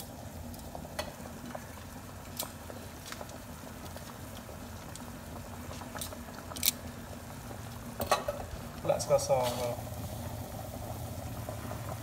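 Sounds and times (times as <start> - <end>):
broth bubbling in a pot: 0.0 - 12.0.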